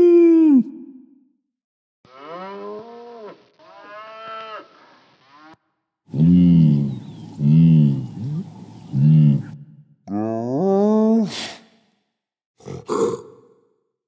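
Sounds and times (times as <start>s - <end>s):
cow mooing: 2.1s - 4.7s, 5.4s - 10.6s.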